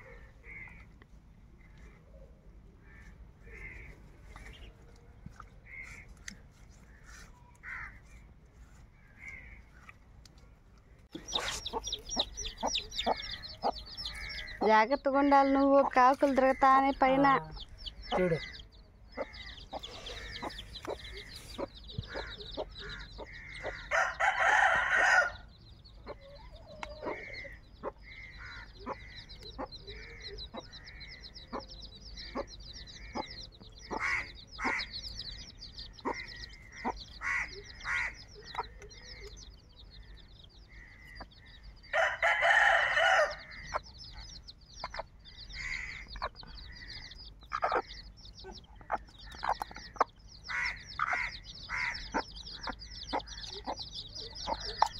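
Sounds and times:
chicks peeping: 2.7s - 54.9s
hen calling: 11.2s - 25.4s, 26.1s - 41.4s, 44.8s - 54.9s
rooster crowing: 23.8s - 25.5s, 41.9s - 43.6s.

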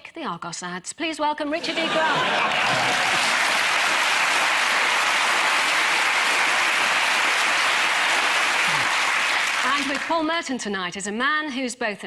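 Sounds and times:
audience applauding: 1.6s - 10.3s.

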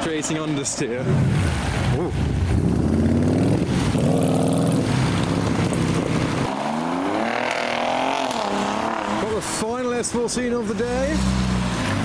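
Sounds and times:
car engine accelerating: 1.2s - 9.6s.

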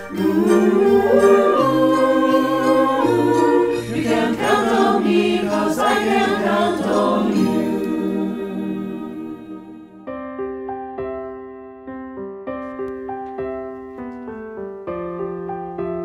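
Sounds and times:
mixed choir singing: 0.0s - 10.0s.

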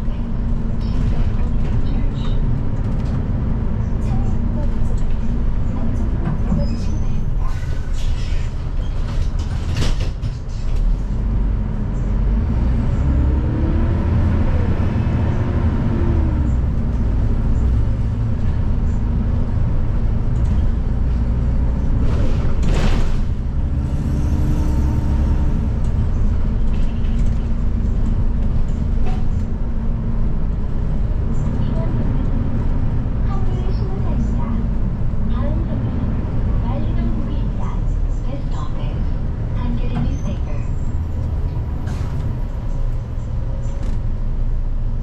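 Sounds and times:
bus engine rumble and whine: 0.0s - 45.0s.

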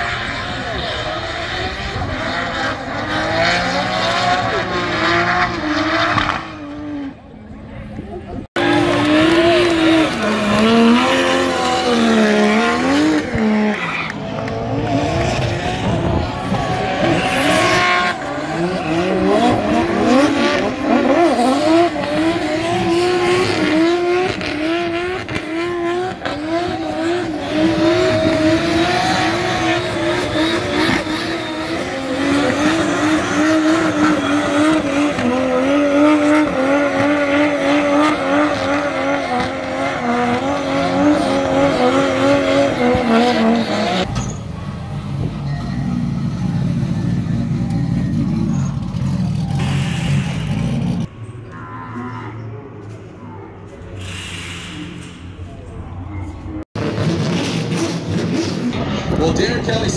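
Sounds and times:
car engine revving: 0.0s - 51.2s, 56.6s - 59.9s
tyre squeal: 43.4s - 44.6s, 47.1s - 50.6s.

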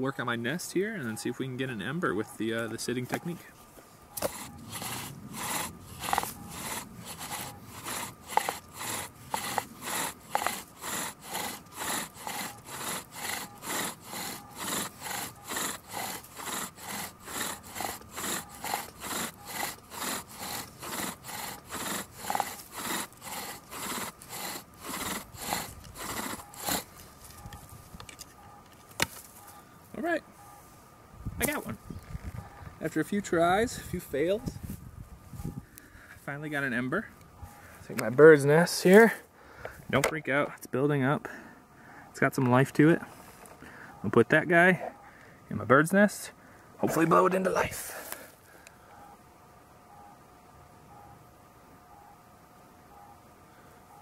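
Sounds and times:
bow drill spindle grinding: 4.2s - 28.2s.

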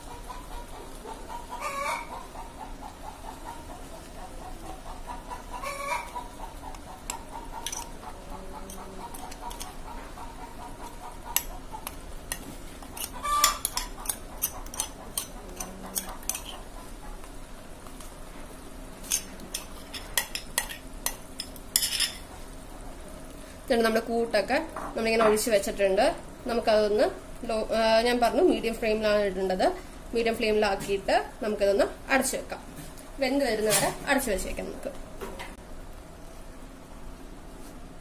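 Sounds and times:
chicken clucking: 0.0s - 11.9s, 12.9s - 17.2s
spoon scraping glass bowl: 7.1s - 7.9s, 8.7s - 9.8s, 11.4s - 16.6s, 19.0s - 22.2s.

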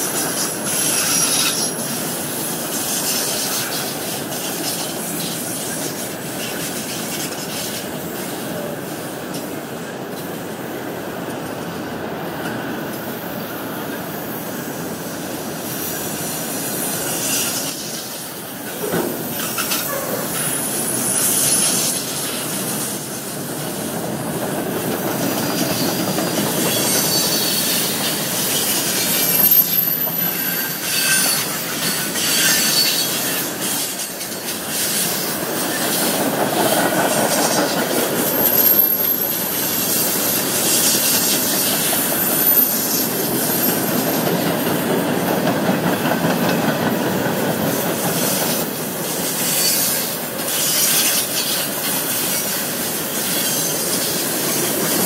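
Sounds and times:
train wheels rumbling on rails: 0.0s - 55.0s
high wheel squeals: 0.1s - 7.6s, 16.6s - 23.9s, 25.4s - 45.2s, 47.6s - 55.0s.

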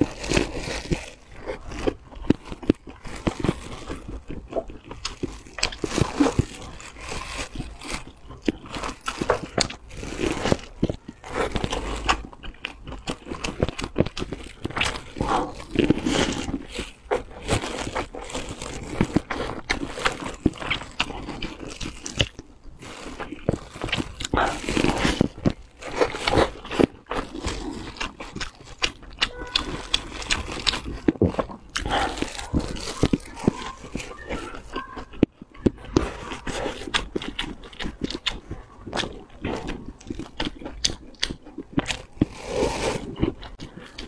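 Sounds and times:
crunchy chewing: 0.0s - 44.0s.

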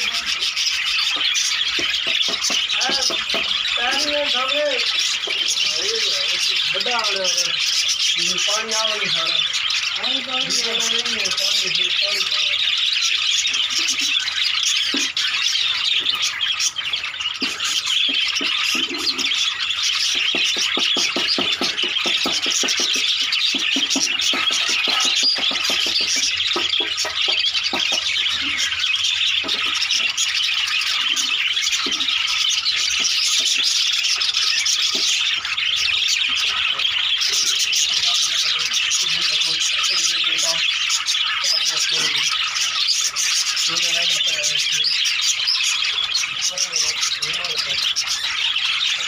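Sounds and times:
flock of budgerigars chattering: 0.0s - 49.0s.

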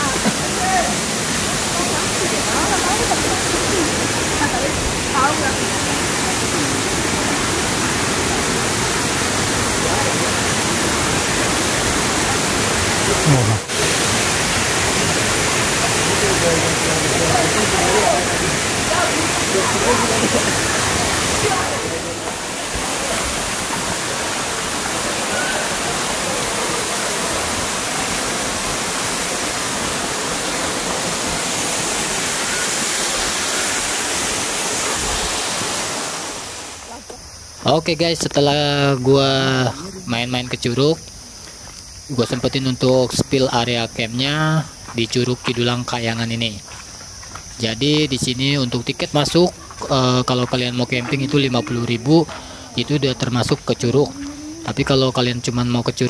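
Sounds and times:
waterfall rushing: 0.0s - 37.2s, 49.1s - 56.0s.

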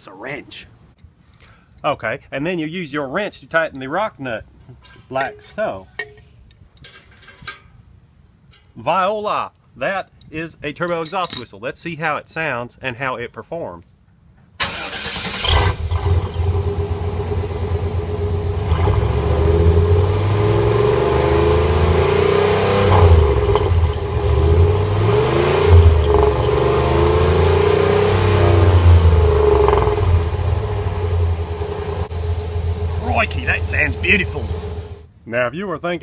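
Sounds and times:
truck engine revving: 14.7s - 35.1s
exhaust whistle tone: 20.6s - 35.0s.

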